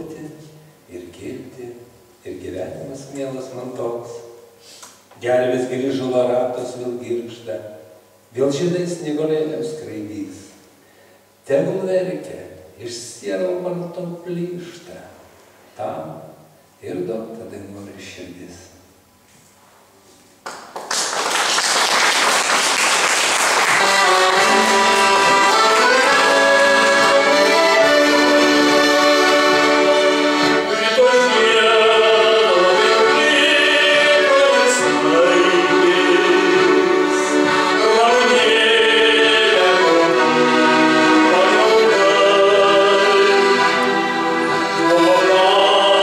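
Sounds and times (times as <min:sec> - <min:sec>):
accordion playing chords and melody: 0:23.4 - 0:46.0.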